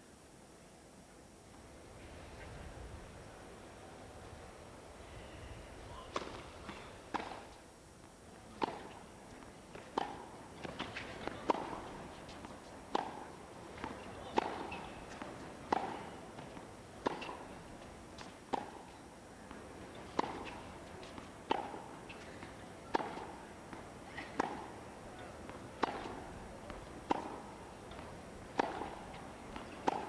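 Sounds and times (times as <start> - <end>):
tennis ball racquet strikes: 6.2 - 7.5, 8.6 - 9.0, 9.7 - 17.5, 19.5 - 22.2, 22.9 - 24.8, 25.4 - 30.0.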